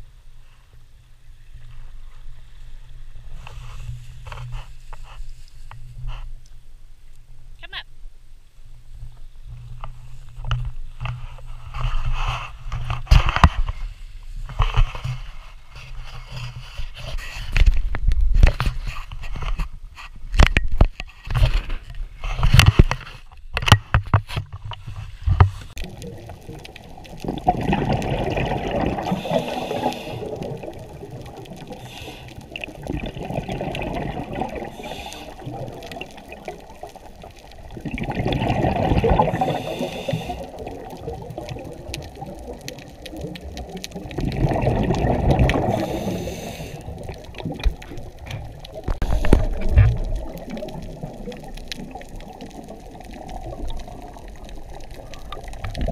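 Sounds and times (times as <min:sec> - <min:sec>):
muffled underwater rush: 0:24.8 - 0:55.9
loud bubbling gurgles: 0:25.8 - 0:31.8, 0:32.4 - 0:55.9.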